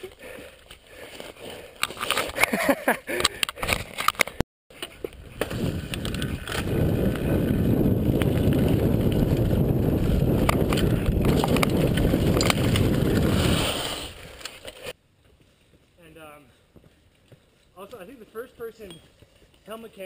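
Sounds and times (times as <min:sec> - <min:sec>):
bike clicks and rattles: 0:00.0 - 0:13.4
bike tyre rumble: 0:04.7 - 0:17.6
wind buffeting microphone: 0:05.2 - 0:14.4.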